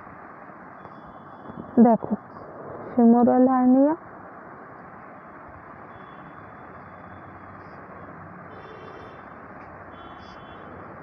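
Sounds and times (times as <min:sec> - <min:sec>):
low hiss and rumble: 0:00.0 - 0:06.7
faint high-pitched tones: 0:05.1 - 0:09.3.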